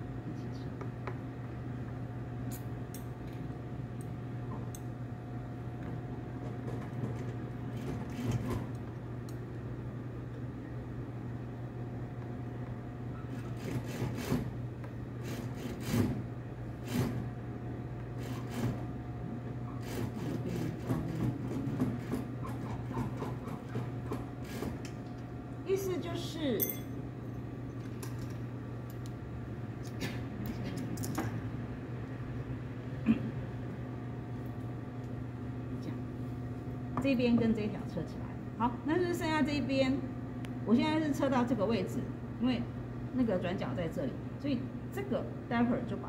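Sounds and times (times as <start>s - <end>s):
sewing machine humming: 7.2s - 8.8s, 13.3s - 14.6s, 15.2s - 17.3s, 18.2s - 18.9s, 19.8s - 24.9s.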